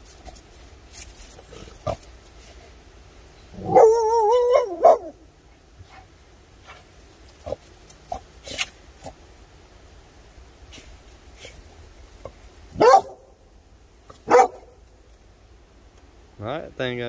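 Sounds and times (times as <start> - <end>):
puppy whining bark: 3.6 - 5.2, 12.8 - 13.3, 14.2 - 14.8
puppy yap: 3.6 - 5.2, 12.8 - 13.3, 14.3 - 14.8.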